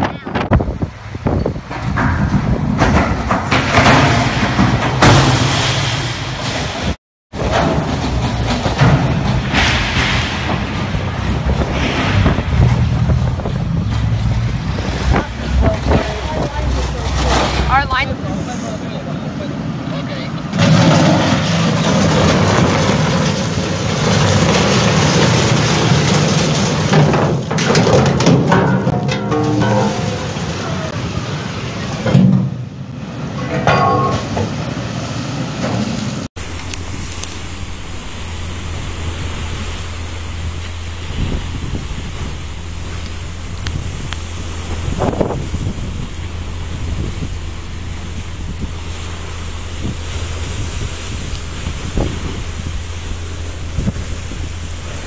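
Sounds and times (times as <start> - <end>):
wind buffeting microphone: 0.0 - 3.5, 7.3 - 18.5, 36.4 - 55.0
churning water: 0.0 - 55.0
ship engines rumbling: 0.0 - 55.0
surf: 0.0 - 55.0.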